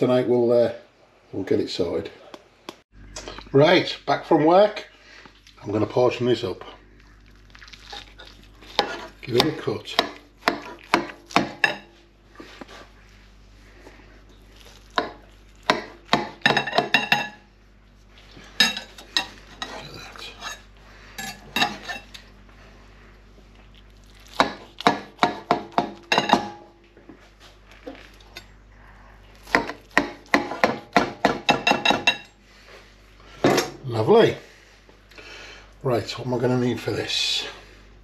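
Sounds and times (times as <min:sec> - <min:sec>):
knife clinking on glass dish: 0:18.6 - 0:19.8.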